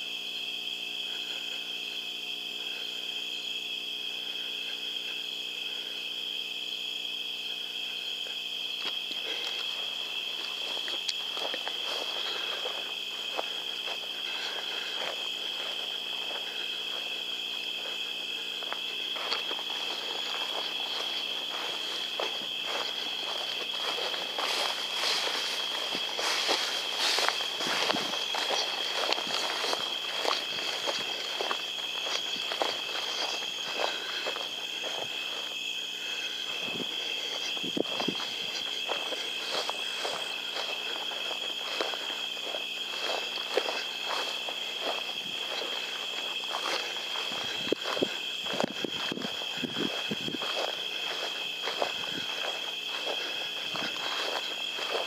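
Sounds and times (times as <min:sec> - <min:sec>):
insects trilling: 0:00.0 - 0:55.0
footsteps swishing through dry grass: 0:07.0 - 0:55.0.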